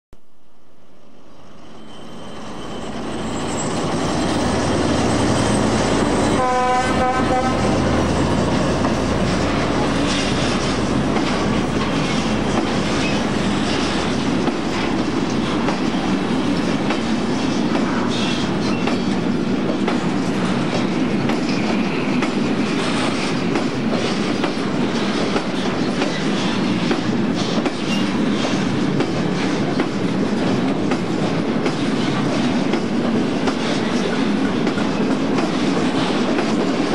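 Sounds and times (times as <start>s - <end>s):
freight train rumbling past: 0.7s - 36.9s
train horn blast: 6.2s - 8.0s.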